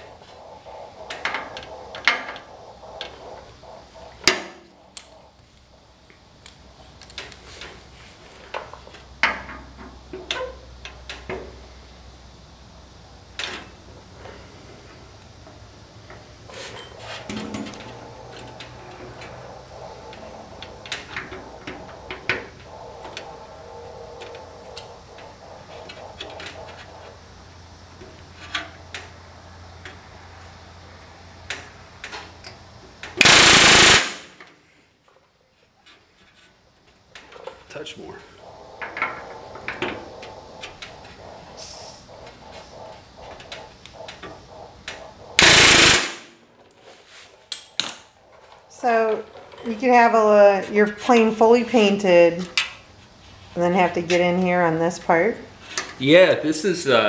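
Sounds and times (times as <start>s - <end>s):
pneumatic rivet gun burst: 33.2s - 34.4s, 45.4s - 46.2s.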